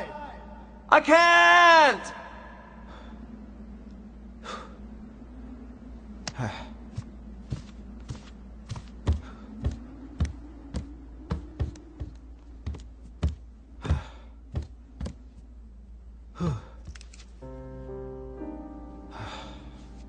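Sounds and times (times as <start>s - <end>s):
low steady hum: 2.0s - 20.0s
sharp smacks and thuds: 7.5s - 15.2s.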